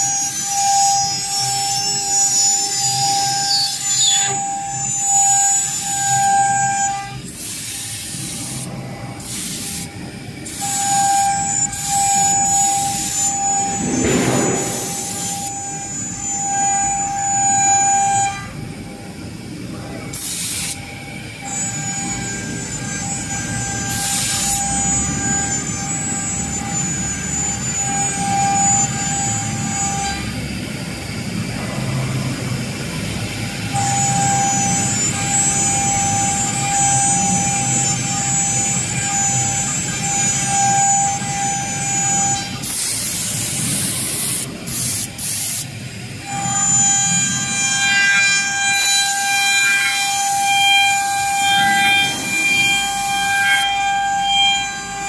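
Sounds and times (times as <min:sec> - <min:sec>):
router spindles high-pitched whine: 0:00.0 - 0:55.0
rumbling wood cutting noise: 0:11.4 - 0:16.4, 0:46.3 - 0:55.0.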